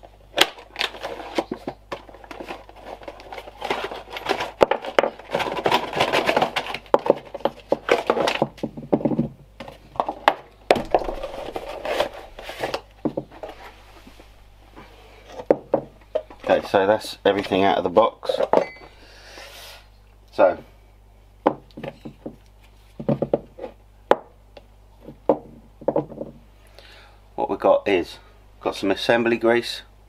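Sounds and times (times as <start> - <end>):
plastic and cardboard crinkling: 0.0 - 14.2.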